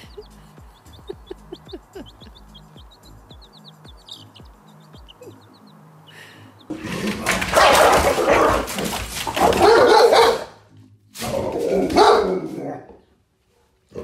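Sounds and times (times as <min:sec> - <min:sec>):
chick peeping: 0:00.0 - 0:06.8
soft background music: 0:00.0 - 0:14.0
dog barking: 0:07.2 - 0:10.6, 0:11.7 - 0:12.6.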